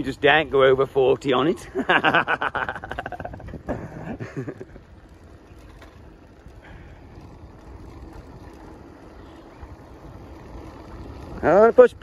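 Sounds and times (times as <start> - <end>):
bike tyres rumbling on concrete: 0.0 - 12.0
wind rush on microphone: 2.8 - 4.7.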